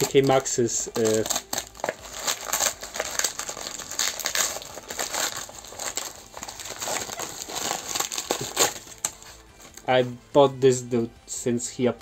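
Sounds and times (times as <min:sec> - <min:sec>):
plastic packaging crinkling: 0:00.0 - 0:09.9.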